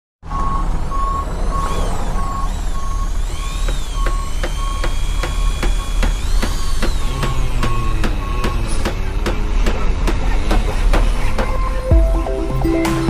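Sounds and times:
reversing alarm beeps: 0.3 - 9.0, 11.4 - 12.1.

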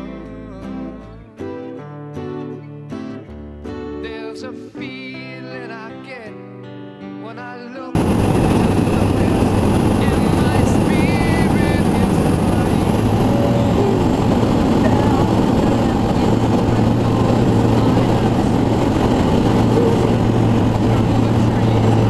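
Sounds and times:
plane engine and propeller: 8.0 - 22.0
wind rushing: 8.0 - 22.0.

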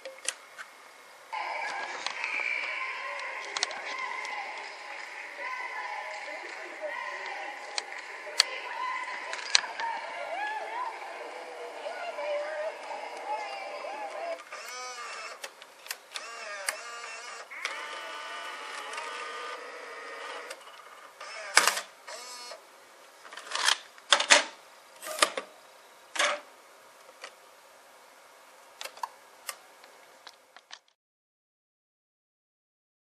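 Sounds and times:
tape mechanism motor whirring: 12.4 - 22.6.

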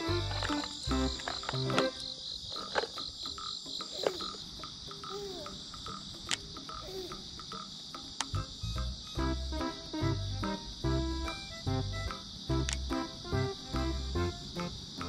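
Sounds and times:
insects chirring: 0.0 - 15.0
fishing tackle clicks: 0.3 - 5.0.

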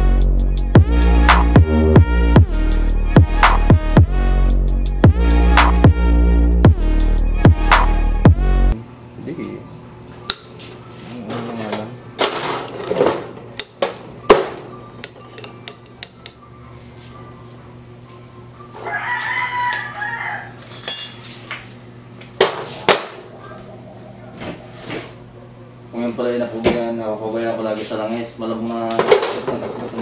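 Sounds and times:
metal tools clinking and knocking: 15.0 - 16.4, 20.6 - 21.5
rooster crowing: 18.7 - 20.8.

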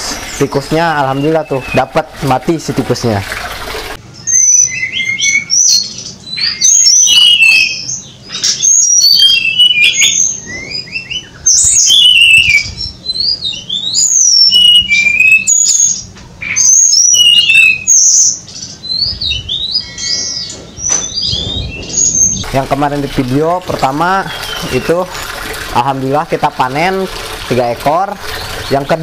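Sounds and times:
bird singing whistled phrases: 4.2 - 22.4.

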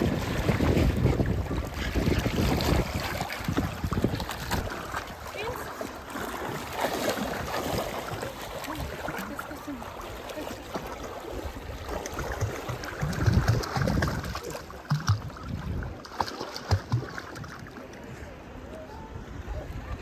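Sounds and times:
wind buffeting microphone: 0.0 - 5.5, 11.2 - 16.0
shallow seawater splashing: 0.0 - 18.6.

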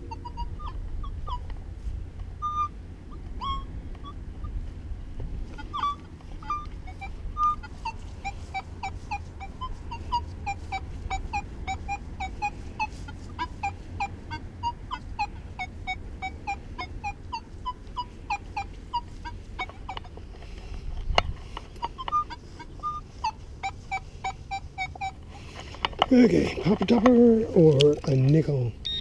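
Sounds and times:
animal chirping: 0.0 - 1.5, 2.4 - 4.6, 5.6 - 20.2, 21.4 - 25.8
metal detector beeps: 0.0 - 1.5, 2.4 - 4.2, 5.5 - 20.6, 21.3 - 26.2.

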